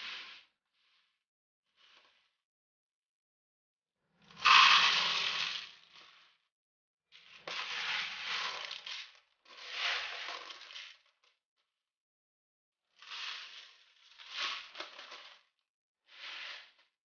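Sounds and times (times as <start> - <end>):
pasta and beans rattling in plastic: 7.6 - 11.0.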